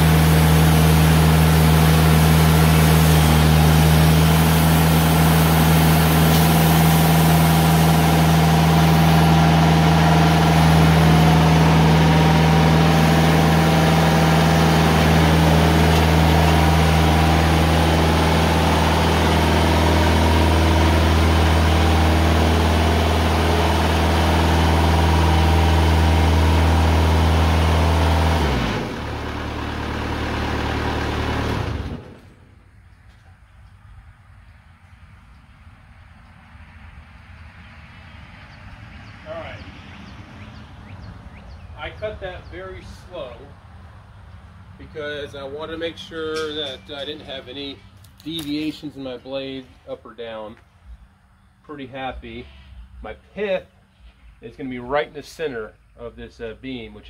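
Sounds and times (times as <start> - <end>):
bandsaw sawmill cutting log: 0.0 - 32.4.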